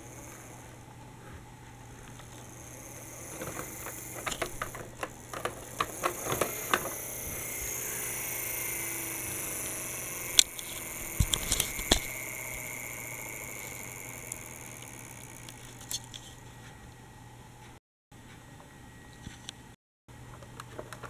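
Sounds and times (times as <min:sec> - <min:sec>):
plastic toys clicking and rattling: 0:02.0 - 0:16.4.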